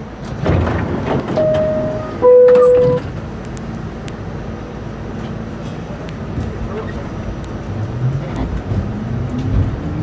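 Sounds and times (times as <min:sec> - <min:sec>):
low rumble of subway car: 0:00.0 - 0:10.0
two-tone door chime: 0:01.4 - 0:03.1.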